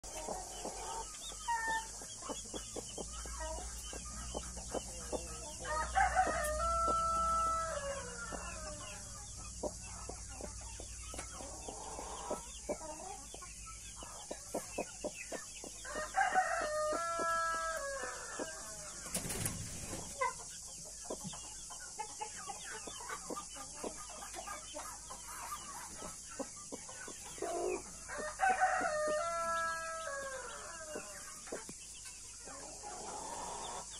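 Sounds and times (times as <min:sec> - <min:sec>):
hen clucking: 0:00.0 - 0:18.5
rooster crowing: 0:05.6 - 0:08.8, 0:15.8 - 0:18.7, 0:28.1 - 0:31.1.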